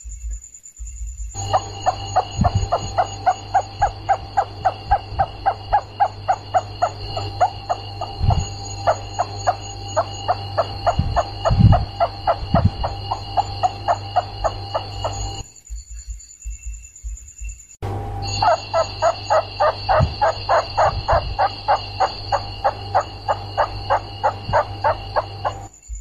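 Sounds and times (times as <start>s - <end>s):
low hum: 1.3s - 15.5s, 17.8s - 26.0s
steady high whine: 1.3s - 15.6s, 17.8s - 26.0s
rats squeaking: 1.4s - 15.4s, 18.2s - 25.7s
low thumps: 1.5s - 15.4s.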